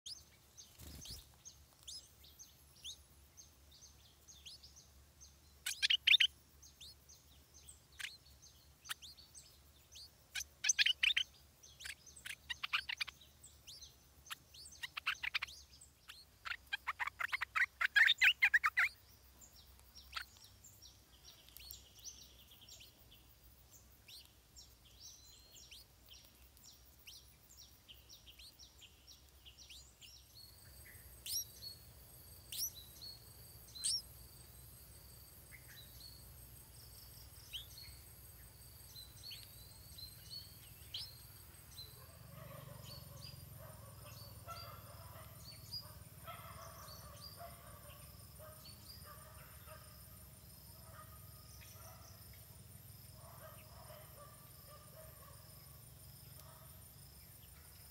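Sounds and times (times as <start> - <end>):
nestling begging chirps: 0.1 - 50.4
faint bird calls: 5.6 - 7.0, 7.6 - 19.1, 29.2 - 31.8, 32.4 - 34.5, 38.9 - 49.9.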